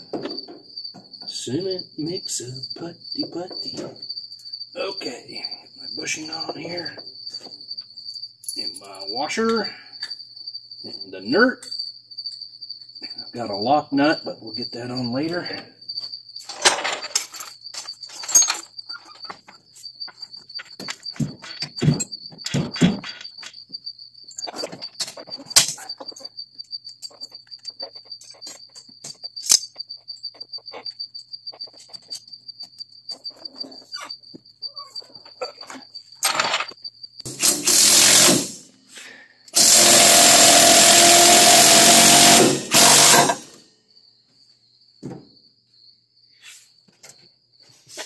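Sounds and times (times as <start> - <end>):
cricket trilling: 0.0 - 48.0
clicks and knocks on metal: 16.4 - 23.7
power tool running: 37.3 - 38.6, 39.6 - 43.5.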